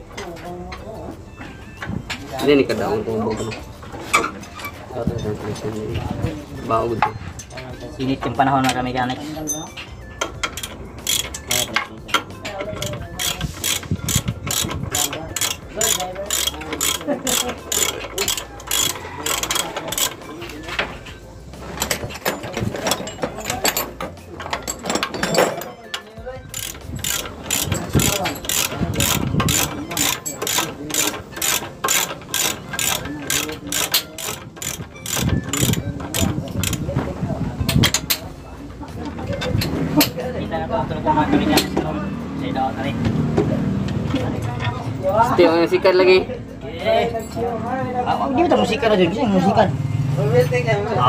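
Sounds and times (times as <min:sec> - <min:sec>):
ratchet wrench clicking: 0:10.2 - 0:36.9.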